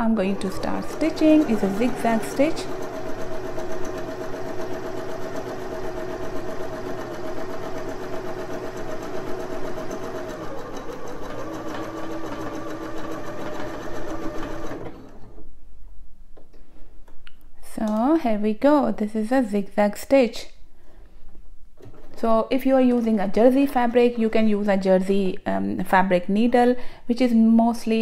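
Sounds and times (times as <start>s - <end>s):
sewing machine running: 0.0s - 15.4s.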